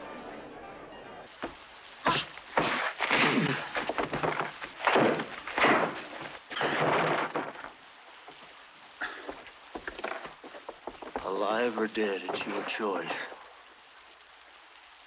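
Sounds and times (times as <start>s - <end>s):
steady hiss: 1.3s - 15.0s
bodies crashing against wood: 1.4s - 12.8s.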